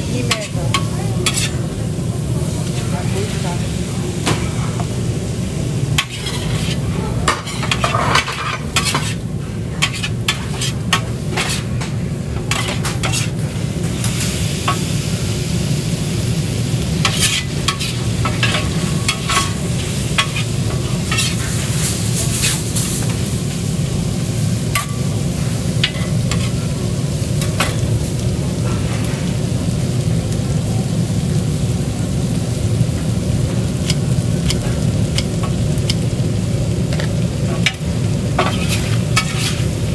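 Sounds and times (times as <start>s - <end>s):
food sizzling on a griddle: 0.0s - 39.9s
metal spatulas scraping and clacking: 0.3s - 1.6s, 6.0s - 9.2s, 9.8s - 11.9s, 12.5s - 13.4s, 17.0s - 19.6s, 20.2s - 22.6s, 25.8s - 26.6s, 33.9s - 36.0s, 38.4s - 39.7s.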